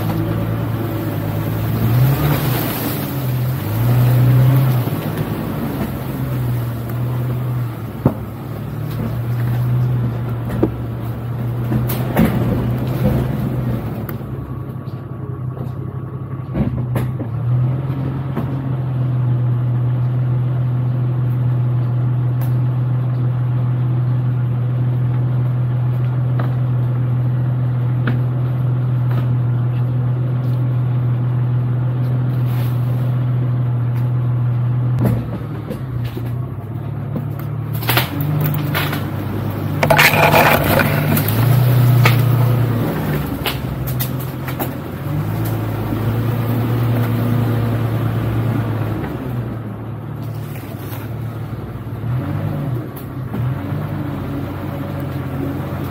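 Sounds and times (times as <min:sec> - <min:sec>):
car engine running at low revs: 0:00.0 - 0:55.9
knocks and scrapes against car body: 0:39.8 - 0:42.2.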